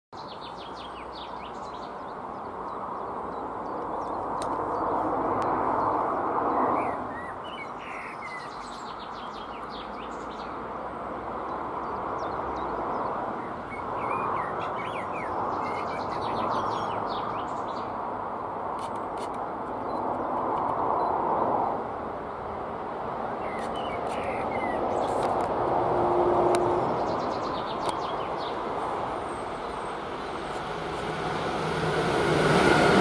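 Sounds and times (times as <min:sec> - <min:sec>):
songbirds chirping: 0:00.2 - 0:31.5
steady rushing background: 0:25.2 - 0:33.0.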